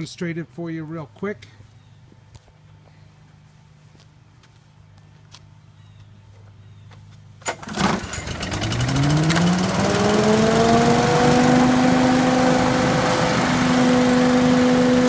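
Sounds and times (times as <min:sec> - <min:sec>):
small engine starting and running: 0:07.4 - 0:15.0.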